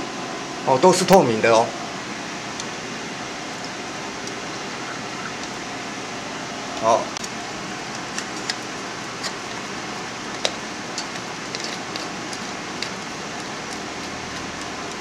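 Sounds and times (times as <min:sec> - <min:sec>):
steady fan-like hiss: 0:00.0 - 0:15.0.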